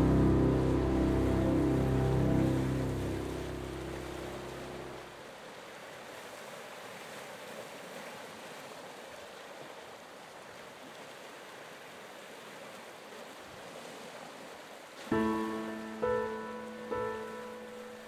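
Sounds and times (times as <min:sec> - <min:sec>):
sea waves washing: 0:00.0 - 0:05.5, 0:15.0 - 0:18.0.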